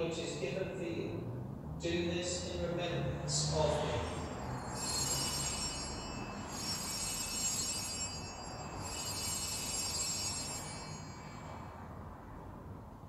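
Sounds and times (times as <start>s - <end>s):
altar bells ringing: 3.4s - 12.8s.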